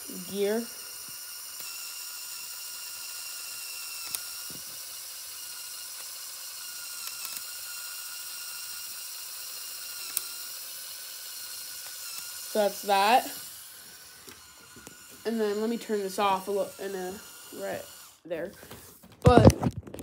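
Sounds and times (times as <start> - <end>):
small electric motor whining: 0.0 - 20.0
mechanism clicks: 7.0 - 7.5.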